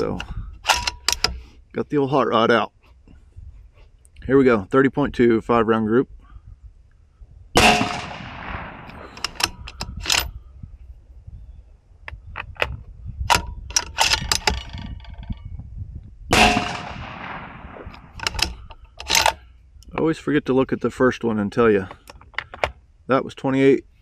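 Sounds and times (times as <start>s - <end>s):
metallic clicks of rifle reloading: 0.0s - 1.4s, 7.6s - 10.4s, 12.4s - 15.4s, 16.4s - 20.0s
rifle shot with echo: 7.6s - 9.5s, 16.3s - 18.6s.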